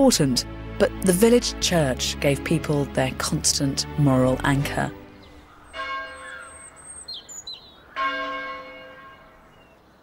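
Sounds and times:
birds chirping: 0:03.5 - 0:10.0
church bell tolling: 0:05.7 - 0:06.5, 0:08.0 - 0:09.5.

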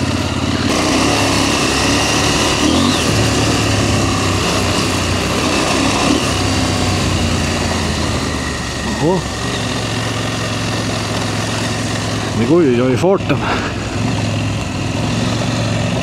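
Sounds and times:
rushing wind: 0:00.0 - 0:12.4
gravel road noise: 0:00.0 - 0:16.0
motorcycle engine running: 0:00.0 - 0:16.0.

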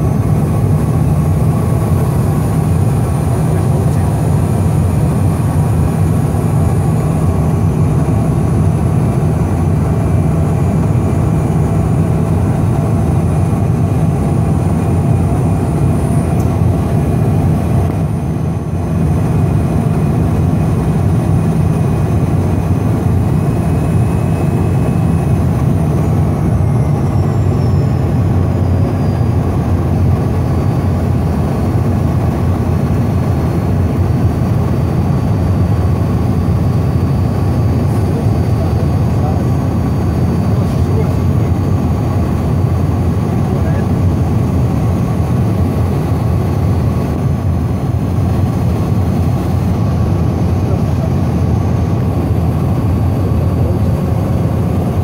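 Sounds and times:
faint high whine: 0:00.0 - 0:31.7
jet cabin rumble of airflow and engines: 0:00.0 - 0:55.0.

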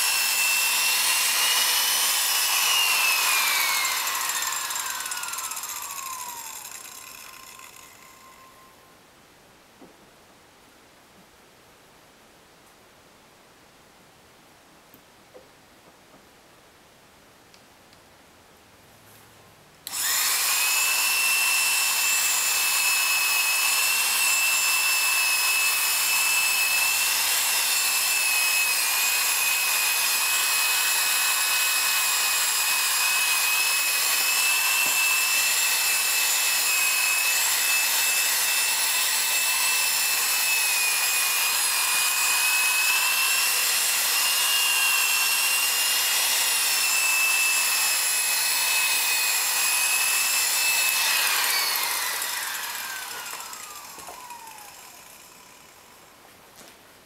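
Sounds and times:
rotary tool whining: 0:00.0 - 0:08.8, 0:19.8 - 0:56.2.

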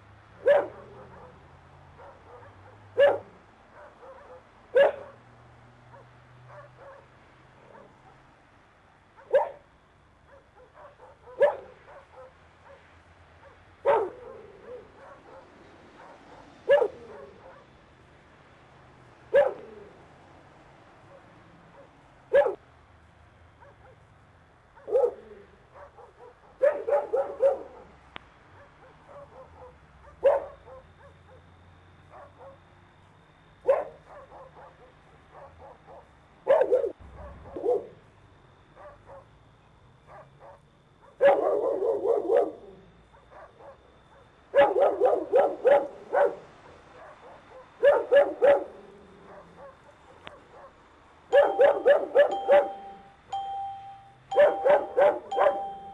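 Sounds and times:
dog barking: 0:00.4 - 0:05.3, 0:05.9 - 0:08.4, 0:09.1 - 0:17.8, 0:19.3 - 0:19.9, 0:21.0 - 0:22.6, 0:23.5 - 0:24.1, 0:24.7 - 0:32.7, 0:33.6 - 0:38.1, 0:38.7 - 0:39.4, 0:40.0 - 0:53.1, 0:54.3 - 0:55.9.

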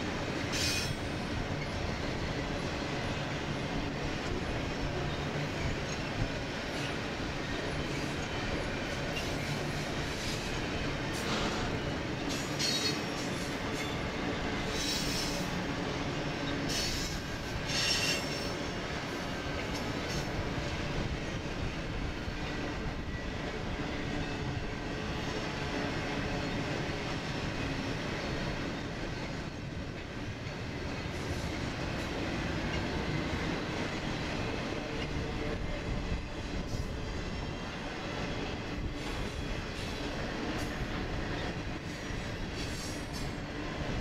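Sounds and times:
train wheels rumbling on rail: 0:00.0 - 0:44.0
high-pitched wheel squeals: 0:16.4 - 0:18.6.

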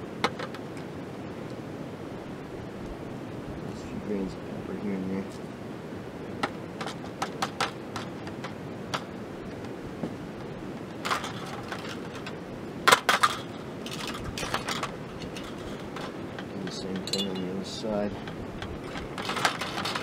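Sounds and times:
background hiss: 0:00.0 - 0:20.0
wire grilling basket rattling: 0:10.9 - 0:20.0.

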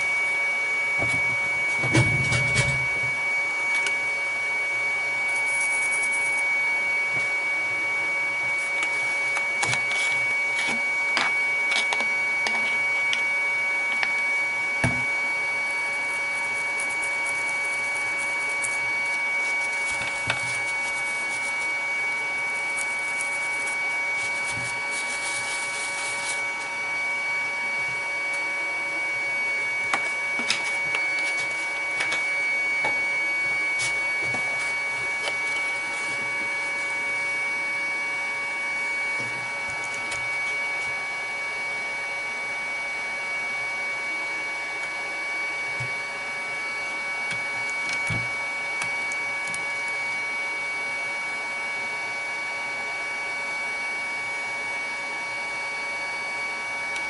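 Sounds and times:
electrical hum with high whine: 0:00.0 - 0:57.0
stiff brush scrubbing circuit board: 0:05.3 - 0:07.3, 0:15.5 - 0:26.8.

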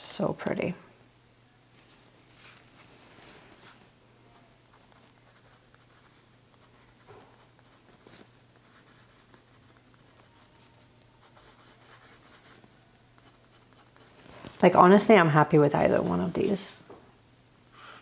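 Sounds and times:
pen nib scratching on paper: 0:04.7 - 0:14.2.

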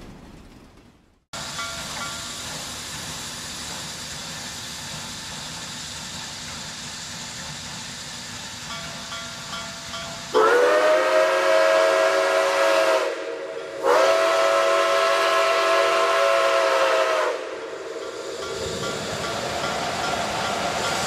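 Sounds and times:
steam hiss: 0:01.4 - 0:21.0
steam locomotive whistle blasts: 0:10.2 - 0:18.2.

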